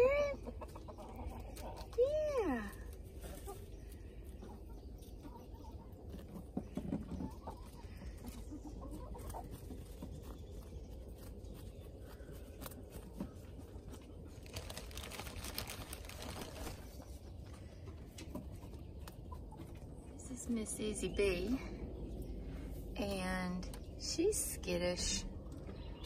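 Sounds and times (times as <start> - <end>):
chickens clucking: 0.0 - 26.0
rabbit chewing crunchily: 0.5 - 5.2, 5.8 - 20.2.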